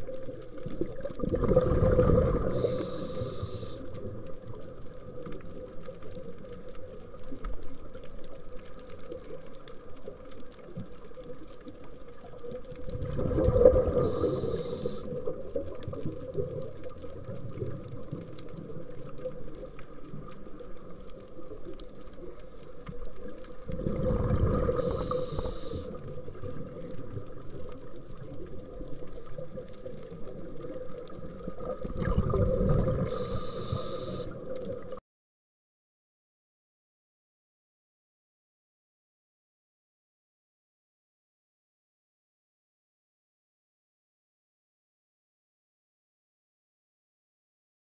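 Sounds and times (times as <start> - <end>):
exhaled bubbles rushing: 0.0 - 6.3, 12.3 - 20.3, 23.6 - 35.0
steady underwater hum: 0.0 - 35.0.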